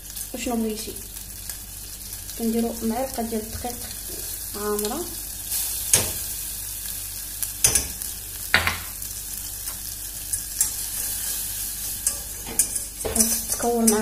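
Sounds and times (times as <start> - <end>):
butter sizzling in saucepan: 0.0 - 14.0
spoon and whisk knocking pan: 5.9 - 6.2, 7.6 - 8.9, 12.0 - 14.0.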